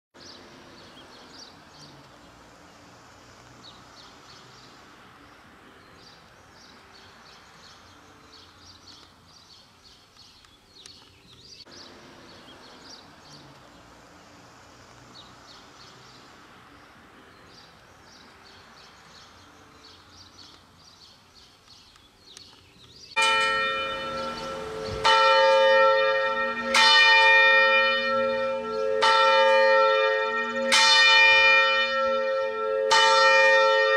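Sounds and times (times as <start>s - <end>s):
quiet outdoor background: 0.1s - 33.9s
church bell ringing: 23.2s - 33.9s.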